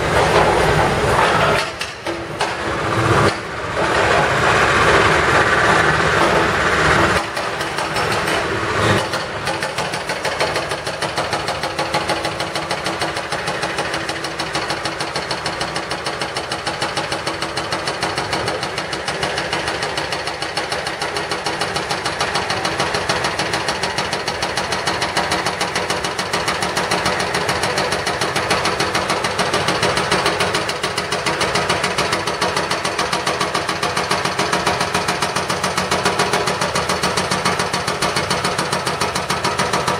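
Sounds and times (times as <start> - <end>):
diesel engines running: 2.3 - 9.5.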